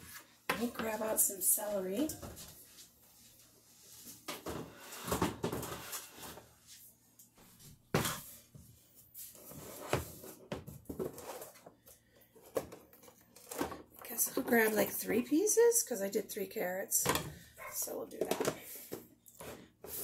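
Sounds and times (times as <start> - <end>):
items shifted in refrigerator: 4.0 - 6.6, 9.3 - 14.8.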